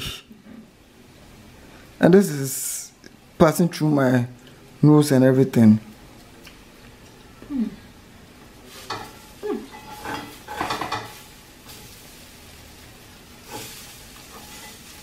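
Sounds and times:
batter sizzling in a frying pan: 8.2s - 15.0s.

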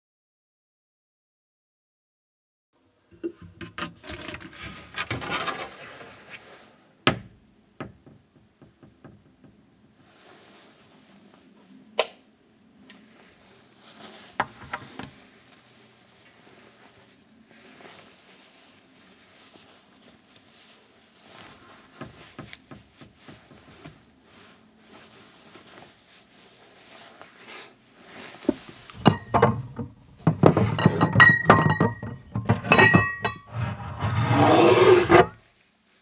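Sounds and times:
scraping rub: 3.7s - 6.7s, 33.4s - 35.4s
faint rustling: 12.8s - 30.4s
glass bottles clinking: 29.0s - 33.5s.

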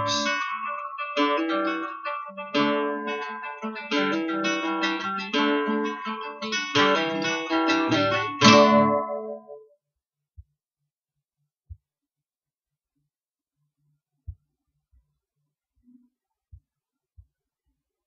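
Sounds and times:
acoustic guitar playing: 0.0s - 9.6s.

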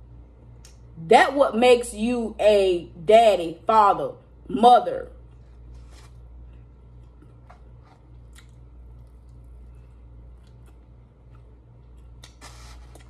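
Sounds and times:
steady low hum: 0.0s - 13.0s
person chewing chicken: 5.3s - 13.0s
wet mouth clicks: 8.1s - 9.5s.

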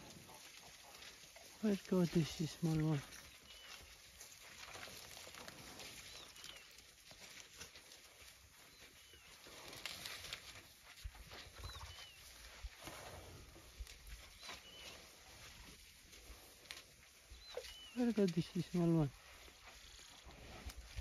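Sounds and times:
rustling and crackling in grass: 0.0s - 21.0s
bird chirping: 3.1s - 3.9s, 6.0s - 6.7s, 8.7s - 9.4s, 11.6s - 12.3s, 14.3s - 15.1s, 17.3s - 18.7s.

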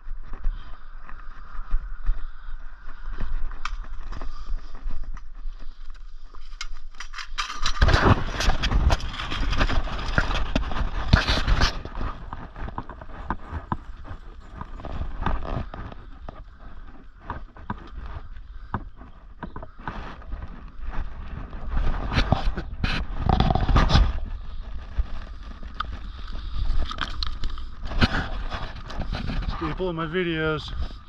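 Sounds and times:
boots on rock and gravel: 7.8s - 31.0s.

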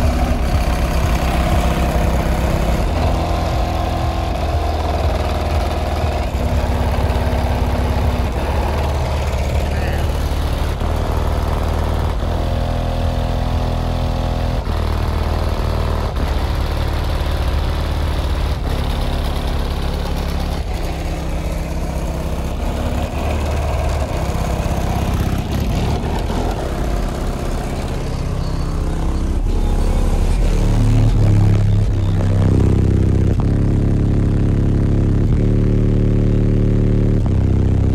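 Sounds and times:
bass-heavy music from car subwoofers: 0.0s - 37.9s.

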